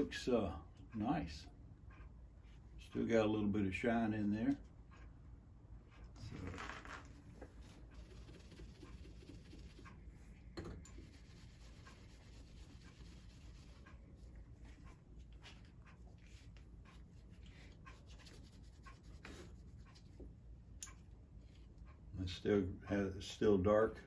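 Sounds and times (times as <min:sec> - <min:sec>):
pad rubbing on steel: 0:06.5 - 0:10.0, 0:10.9 - 0:14.8, 0:15.8 - 0:20.2.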